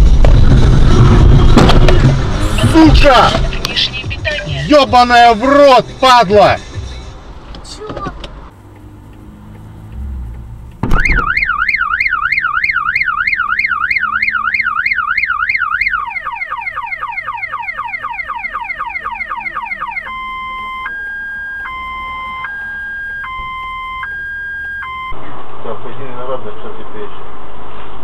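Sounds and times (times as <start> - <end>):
car alarm siren: 10.8 - 25.2.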